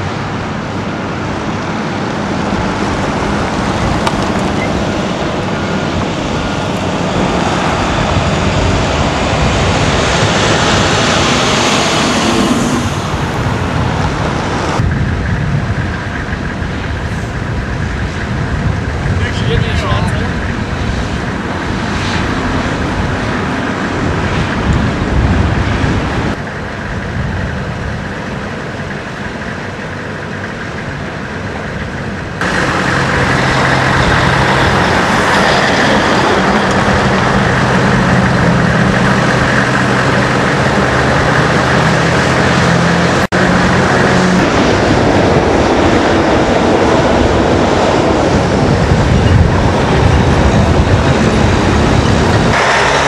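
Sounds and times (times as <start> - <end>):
diesel engine droning: 0.0 - 53.0
diesel trucks and machinery rumbling: 0.0 - 53.0.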